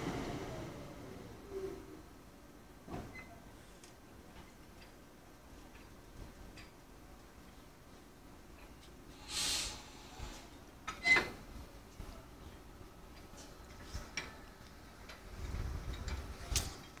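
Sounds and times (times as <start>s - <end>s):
short hiss: 9.1s - 10.5s.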